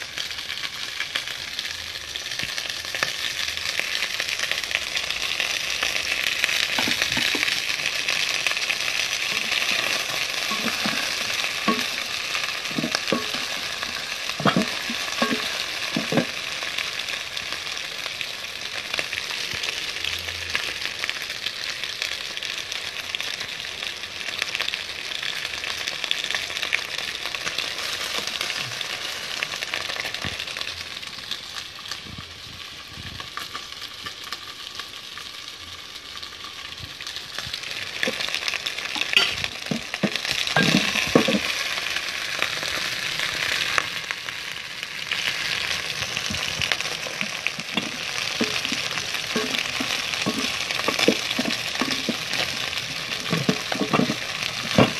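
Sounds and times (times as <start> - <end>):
chicken sizzling in a pot: 0.0 - 54.9
spoon knocking against pot: 10.5 - 12.0, 14.4 - 16.3, 39.1 - 41.5.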